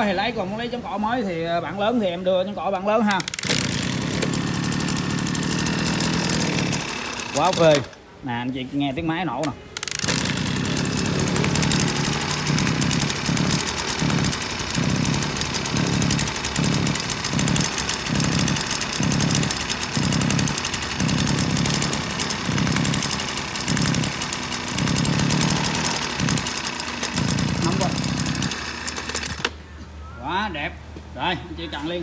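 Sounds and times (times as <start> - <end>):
brush cutter engine running: 3.1 - 8.0, 9.4 - 29.6.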